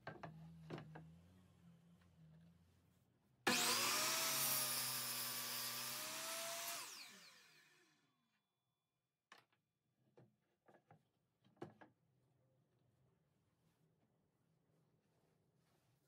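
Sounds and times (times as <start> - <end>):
saw motor whining: 3.5 - 8.0.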